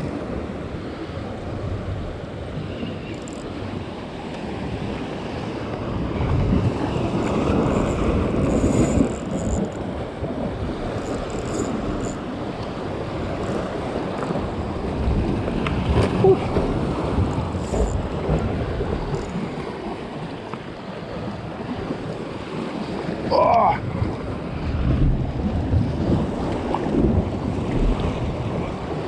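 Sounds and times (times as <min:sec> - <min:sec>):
wind buffeting microphone: 0:00.0 - 0:29.0
waves washing against rocks: 0:09.8 - 0:20.3.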